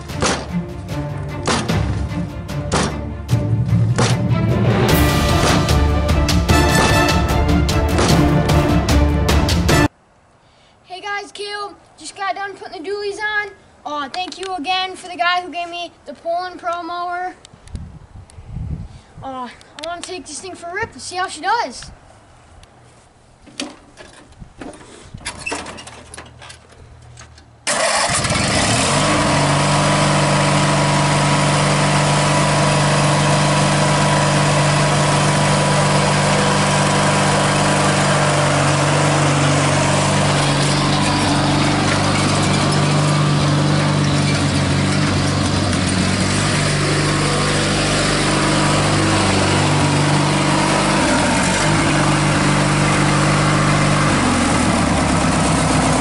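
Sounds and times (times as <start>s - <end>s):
lawn mower engine running: 0.0s - 9.9s, 27.7s - 56.0s.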